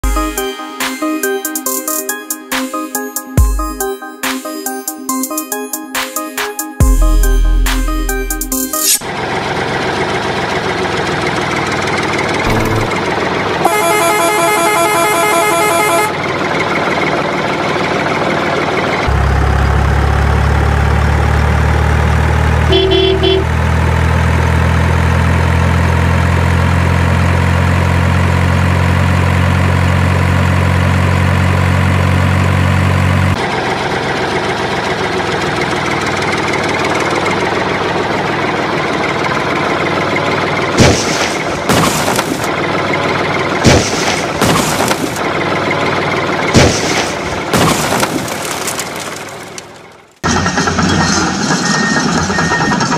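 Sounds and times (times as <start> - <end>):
rough engine noise: 9.0 - 52.9
truck engine idling: 9.1 - 24.8, 29.6 - 52.9
horn toot: 13.6 - 16.2, 22.7 - 23.6.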